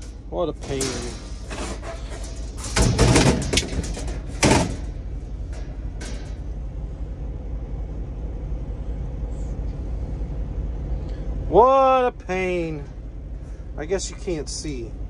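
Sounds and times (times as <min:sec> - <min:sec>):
metal plate scraping and clattering: 0:00.0 - 0:06.5
low steady hum: 0:00.0 - 0:15.0.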